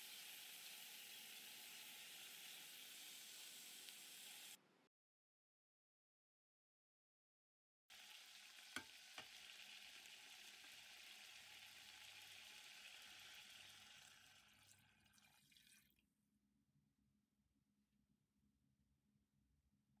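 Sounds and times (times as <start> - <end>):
meat sizzling in a pot: 0.0 - 4.6, 7.9 - 14.9.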